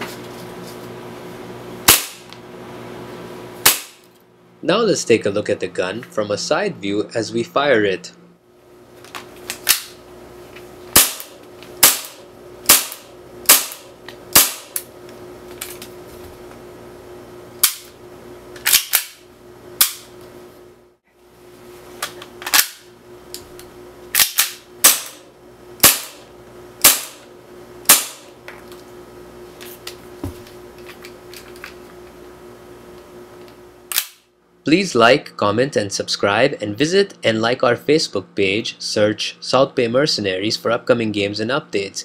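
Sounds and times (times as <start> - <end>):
airsoft pistol shots: 1.9 - 2.3, 3.6 - 4.0, 10.9 - 14.8, 24.2 - 25.2, 25.8 - 26.2, 26.8 - 27.2, 27.9 - 28.3.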